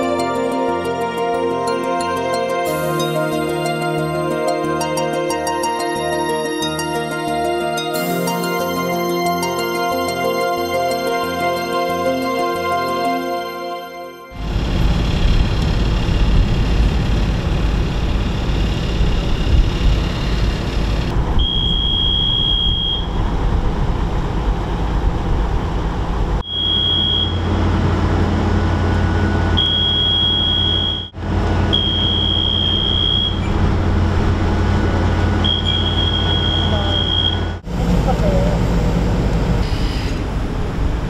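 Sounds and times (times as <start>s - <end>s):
crane diesel engine running: 14.3s - 41.0s
high warning buzzer: 18.3s - 23.2s, 26.4s - 27.7s, 28.9s - 33.6s, 35.2s - 37.6s.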